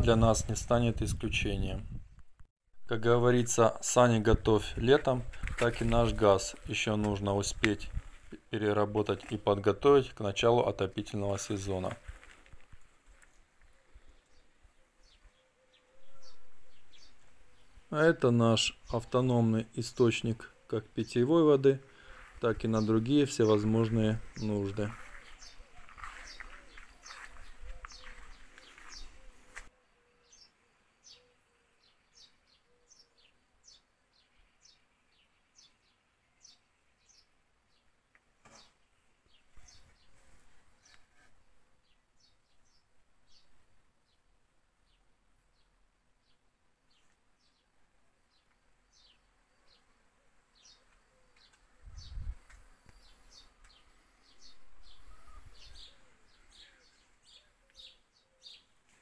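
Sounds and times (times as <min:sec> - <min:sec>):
outdoor rustling: 0:00.0 - 0:59.0
small birds chirping: 0:02.9 - 0:59.0
small bird chirping: 0:24.8 - 0:37.9, 0:50.5 - 0:59.0.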